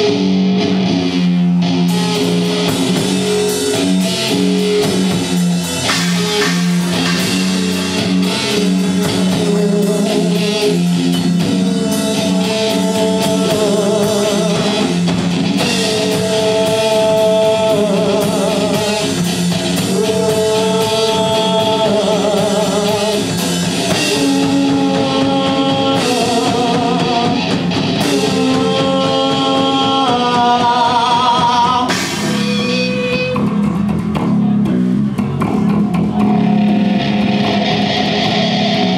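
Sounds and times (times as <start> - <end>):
live rock band playing: 0.0 - 38.9
man singing: 8.4 - 33.4.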